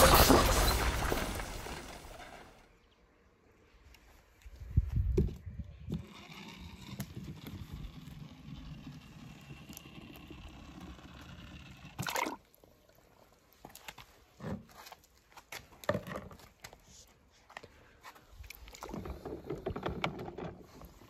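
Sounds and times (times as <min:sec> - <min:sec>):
toy truck wheels rumbling: 0:00.0 - 0:02.7, 0:05.8 - 0:12.0
splash into water: 0:12.0 - 0:12.4.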